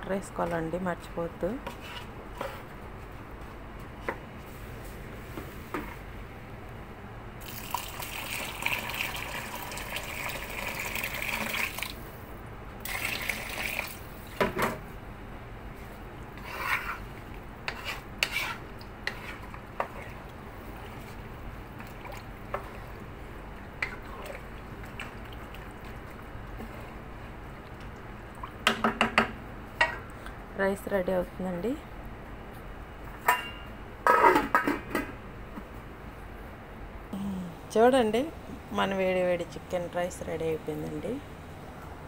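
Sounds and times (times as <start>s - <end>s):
water pouring into a pot: 7.4s - 12.0s, 12.8s - 14.0s
wooden spatula stirring rice: 15.8s - 21.2s.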